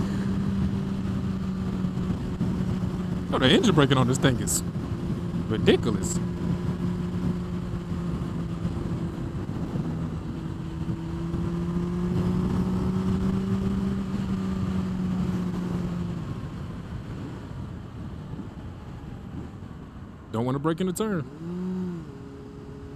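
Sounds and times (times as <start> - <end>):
motorcycle engine running: 0.0 - 17.4, 21.2 - 22.9
wind rush: 0.0 - 20.3.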